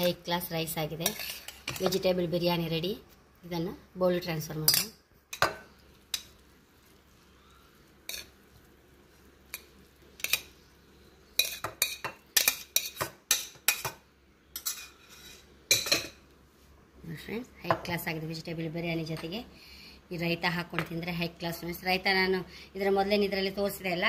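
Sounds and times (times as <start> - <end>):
metal spoon clinking on pot: 4.6 - 6.4, 8.1 - 8.4, 11.4 - 16.2.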